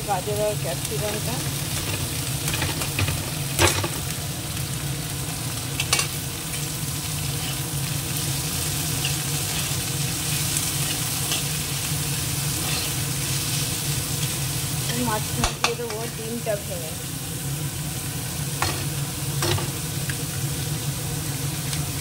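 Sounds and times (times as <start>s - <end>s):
vegetables sizzling in hot oil: 0.0s - 22.0s
spatula stirring in pan: 12.4s - 15.9s.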